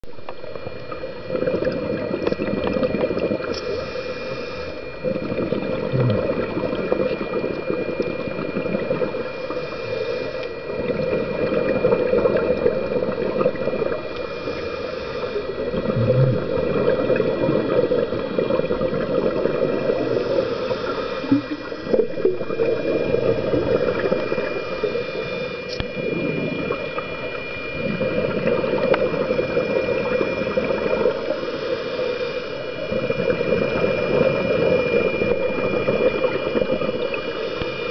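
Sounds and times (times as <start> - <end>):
underwater exhale bubbles: 0.1 - 37.9
regulator inhale hiss: 3.4 - 5.4, 7.6 - 11.0, 13.6 - 37.9.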